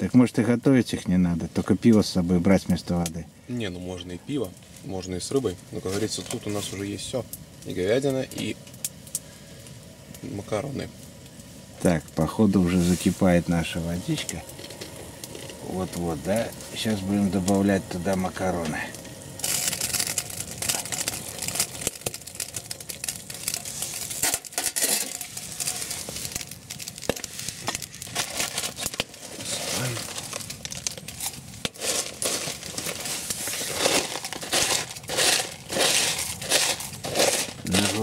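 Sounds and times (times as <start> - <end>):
foil pouch crinkling: 12.7 - 38.0.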